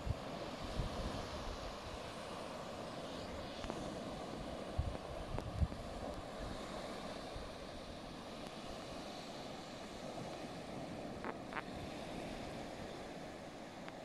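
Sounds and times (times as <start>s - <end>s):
wind buffeting microphone: 3.2s - 7.9s.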